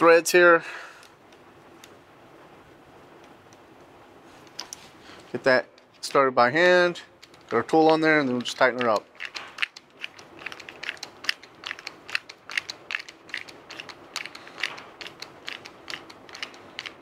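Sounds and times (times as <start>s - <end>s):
metal clicks and scrapes of hand tool: 7.2s - 17.0s.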